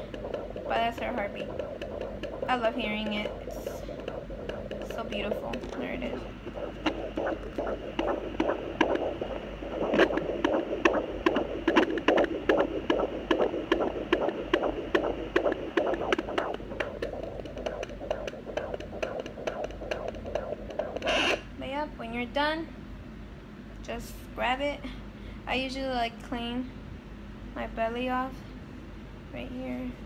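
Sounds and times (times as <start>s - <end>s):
fetal heartbeat whooshing pulse: 0.0s - 22.4s.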